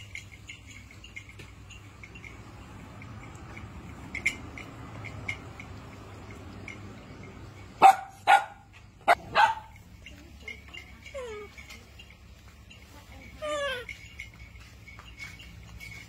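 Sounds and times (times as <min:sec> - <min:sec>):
dog barking: 0:07.8 - 0:09.8.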